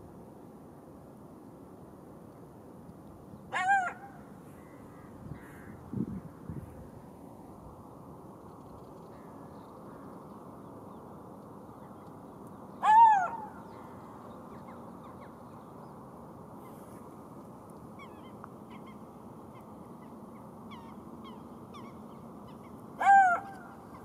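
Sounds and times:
low background hiss: 0.0 - 24.0
jackal yelping calls: 3.5 - 4.1, 23.0 - 23.6.

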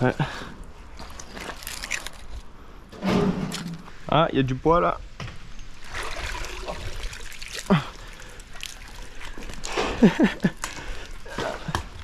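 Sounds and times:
water trickling and splashing: 5.7 - 12.0.

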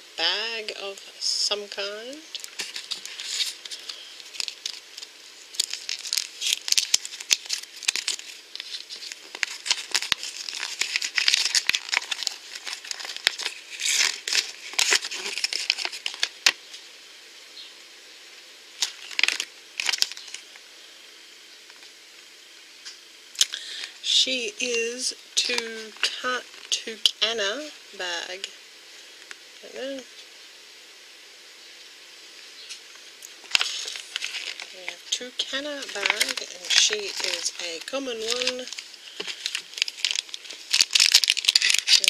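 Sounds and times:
paper crinkling and rustling: 2.3 - 16.6, 18.8 - 20.5, 32.7 - 42.0.

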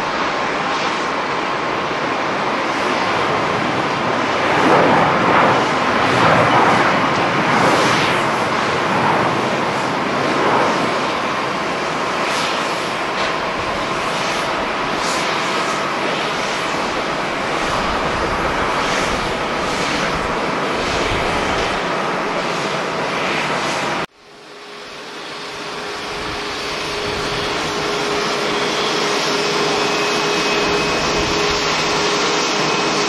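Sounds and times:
jet engines rushing: 0.0 - 33.0.

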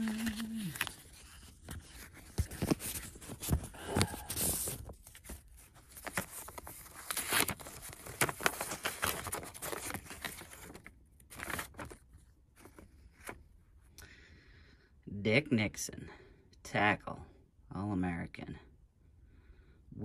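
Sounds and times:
envelope tearing: 0.0 - 12.0
paper rustling and crinkling: 0.0 - 13.5.

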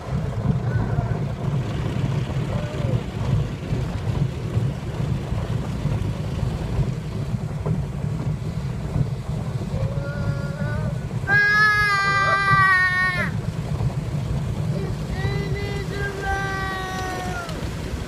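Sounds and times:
car wash machinery and water rumble: 0.0 - 18.0
child calling out: 9.7 - 13.4, 14.8 - 17.6.

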